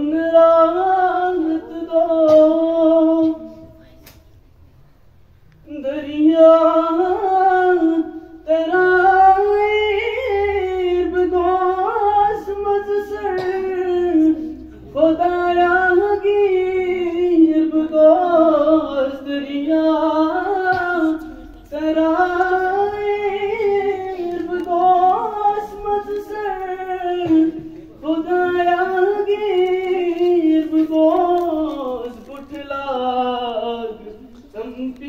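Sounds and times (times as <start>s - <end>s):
boy singing: 0.0s - 4.2s, 5.6s - 35.0s
singer breathing: 8.1s - 8.5s, 14.4s - 14.9s.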